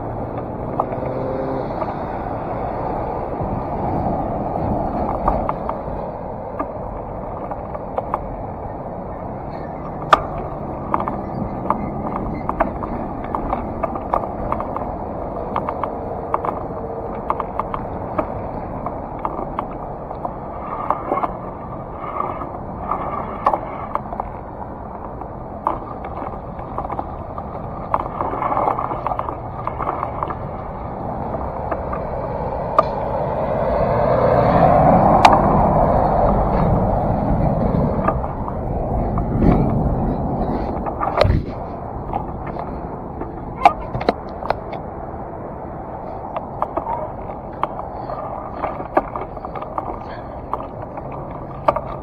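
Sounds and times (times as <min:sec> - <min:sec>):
heavy truck passing: 0:00.0 - 0:52.0
small clicks and rattles: 0:09.3 - 0:33.1, 0:45.9 - 0:52.0.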